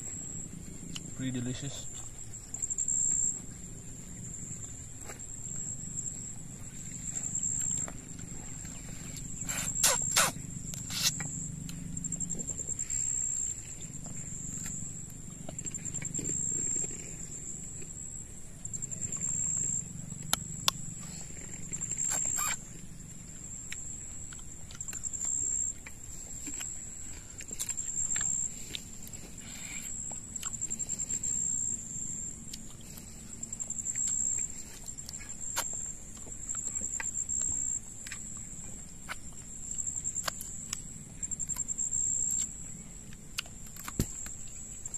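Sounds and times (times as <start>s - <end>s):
insect chirping: 0.0s - 44.9s
person chewing and sucking: 6.8s - 17.9s, 20.2s - 22.6s, 23.6s - 31.2s, 32.5s - 42.5s, 43.1s - 44.9s.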